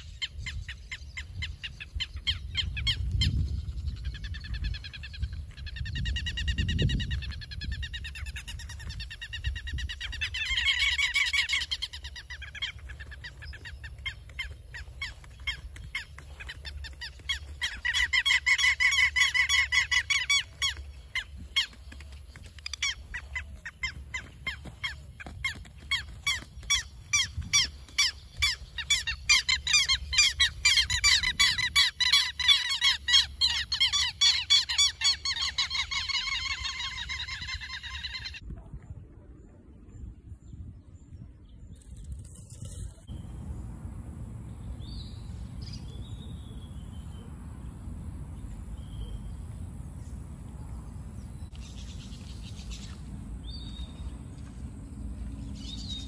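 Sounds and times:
lapwings calling: 0:00.0 - 0:38.4.

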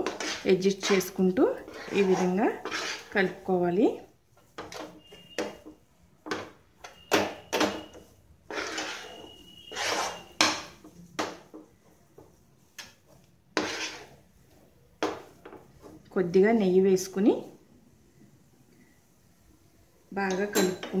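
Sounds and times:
metal spatula scraping a pan: 0:00.0 - 0:11.5, 0:12.8 - 0:14.3.

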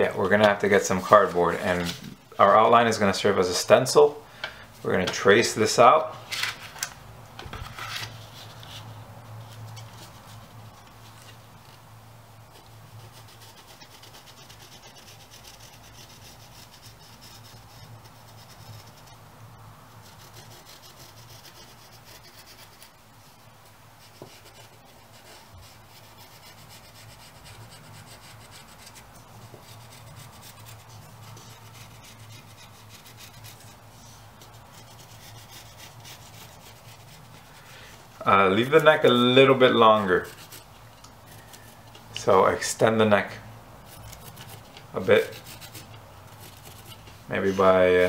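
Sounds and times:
pencil scratching on cardboard: 0:12.5 - 0:19.2, 0:20.0 - 0:37.6, 0:38.5 - 0:41.8, 0:43.8 - 0:47.5.

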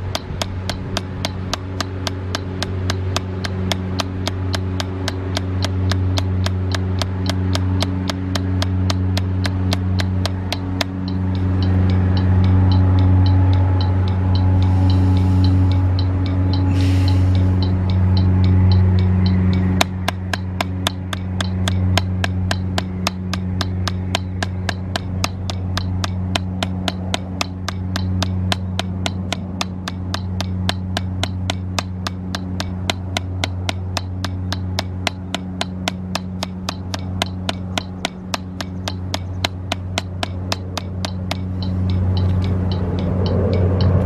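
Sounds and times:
drumsticks on practice pad: 0:00.0 - 0:44.0
low hum: 0:00.0 - 0:44.0.

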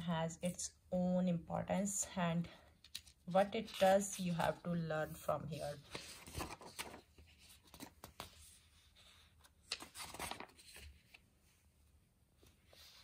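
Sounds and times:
paper pages rustling: 0:02.8 - 0:11.3.

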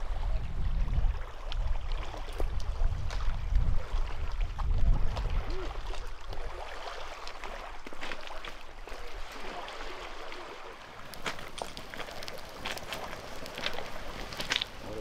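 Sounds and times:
wind buffeting microphone: 0:00.0 - 0:06.6
small waves lapping against rocks: 0:00.0 - 0:15.0.

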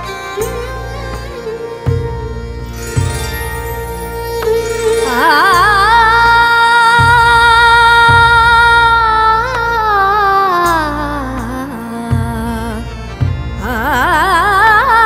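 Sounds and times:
low rhythmic accompaniment: 0:00.0 - 0:15.0
woman singing: 0:03.4 - 0:15.0.

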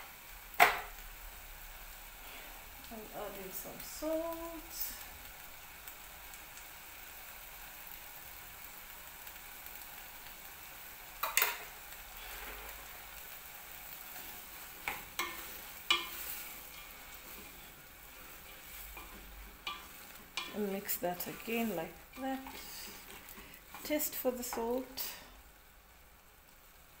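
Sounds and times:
food sizzling in a pot: 0:00.0 - 0:27.0
wooden spoon stirring: 0:14.1 - 0:25.1.

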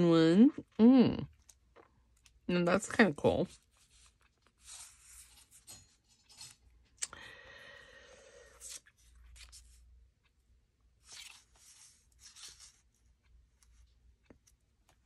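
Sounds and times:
paper rustling and sliding: 0:03.7 - 0:06.6, 0:11.0 - 0:12.9.

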